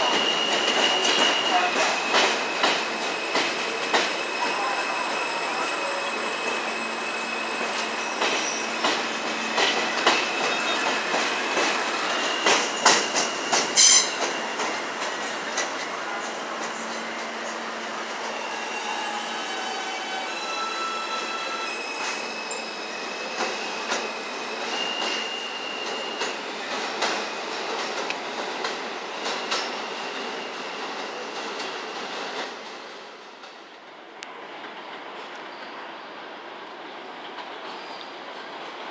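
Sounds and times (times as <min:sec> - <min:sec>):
high-pitched wheel squeal: 0:00.0 - 0:15.0, 0:18.2 - 0:26.3
train wheel and rail noise: 0:00.0 - 0:38.9
train wheels clicking over rail joints: 0:00.1 - 0:04.2, 0:07.8 - 0:17.0
short screeches: 0:00.1 - 0:14.9.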